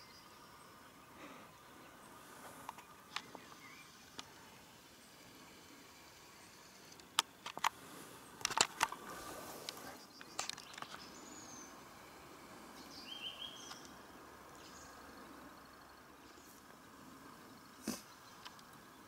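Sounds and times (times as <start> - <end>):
faint outdoor background: 0.0 - 19.0
camera handling clicks and rustling: 7.0 - 7.8, 8.4 - 9.0, 9.6 - 11.1
high bird chirps: 12.7 - 14.0.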